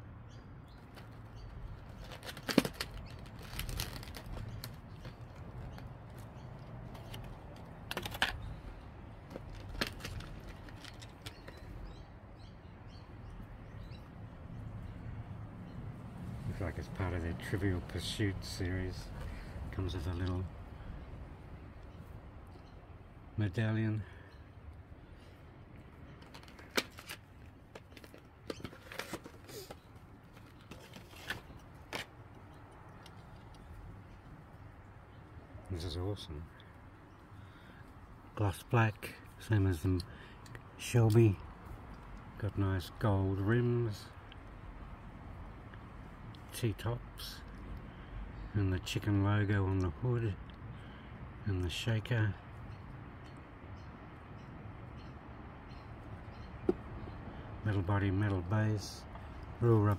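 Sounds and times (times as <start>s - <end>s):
small birds chirping: 0.0s - 26.7s, 27.3s - 59.9s
plastic packaging clicks and crackles: 0.8s - 11.8s, 26.1s - 33.6s.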